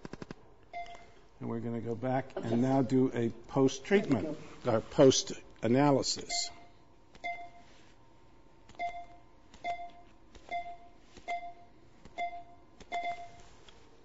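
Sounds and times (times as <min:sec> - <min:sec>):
short beeps: 0:06.3 - 0:07.7, 0:08.8 - 0:13.5.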